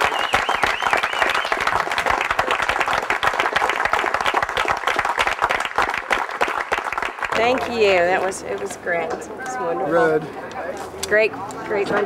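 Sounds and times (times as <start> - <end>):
crowd clapping: 0.0 - 9.1.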